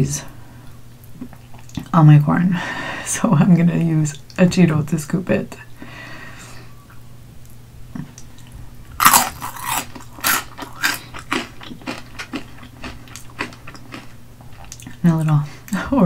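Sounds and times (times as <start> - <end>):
crunchy chewing: 8.0 - 15.0
crunchy bite into snack: 9.0 - 14.8.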